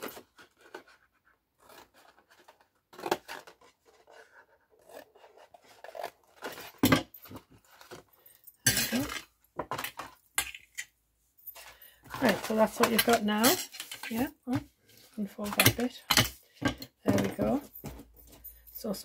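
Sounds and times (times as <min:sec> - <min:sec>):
paper rustling: 0:11.8 - 0:14.2.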